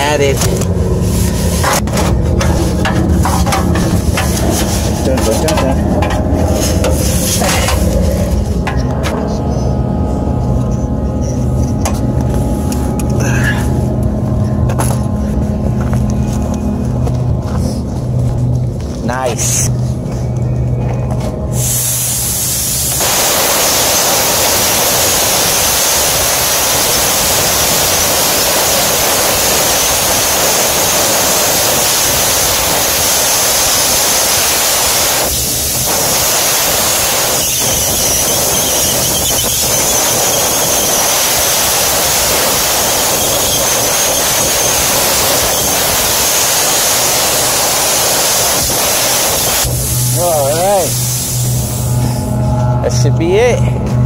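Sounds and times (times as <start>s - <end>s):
gas jetting from blow nozzle: 0.8s - 8.7s, 21.5s - 52.2s.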